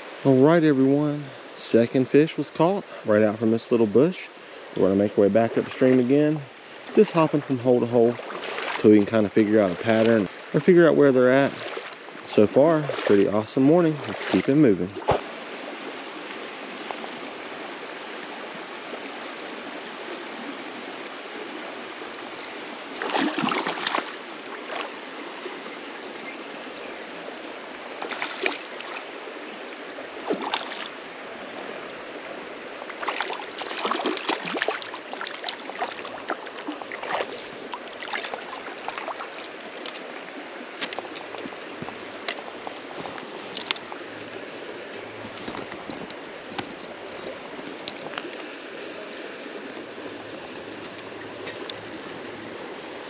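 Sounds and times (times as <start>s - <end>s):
creek water flowing over rocks: 0.0s - 53.0s
splashes in water: 8.1s - 9.0s, 11.4s - 12.0s, 12.6s - 15.4s, 22.4s - 26.6s, 28.0s - 29.1s, 30.2s - 31.0s, 32.9s - 40.1s.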